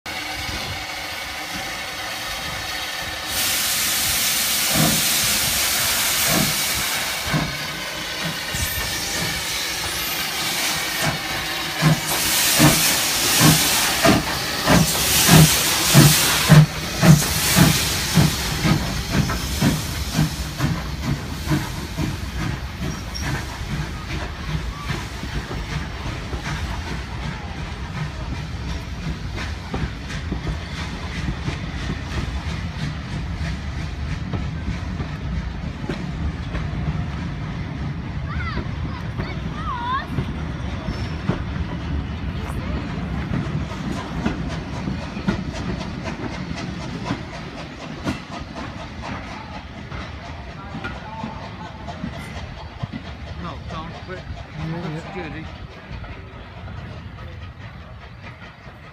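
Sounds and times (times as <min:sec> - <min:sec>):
steam hissing: 0:00.1 - 0:58.9
steam engine exhaust chuffs: 0:00.2 - 0:38.1
wheels clicking on rail joints: 0:00.6 - 0:58.9.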